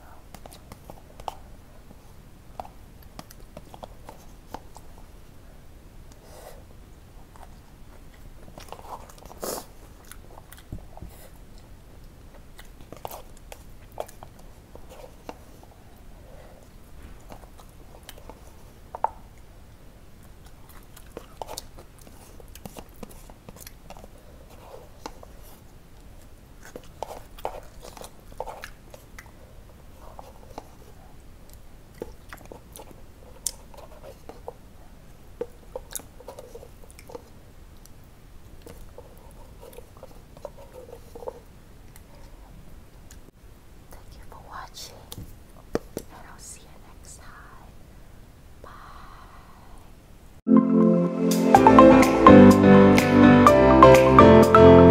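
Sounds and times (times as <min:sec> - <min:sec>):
person chewing noodles: 0:07.4 - 0:10.7.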